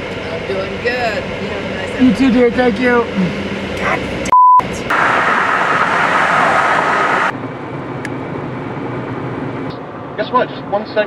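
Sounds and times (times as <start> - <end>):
car road and wind noise: 0.0 - 11.0
short steady beep tone: 4.3 - 4.6.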